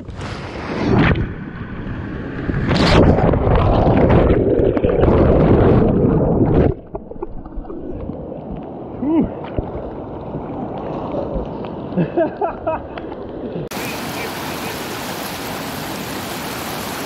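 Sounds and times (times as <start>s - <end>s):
muffled underwater water rushing: 0.0s - 17.0s
water rushing: 13.7s - 17.0s.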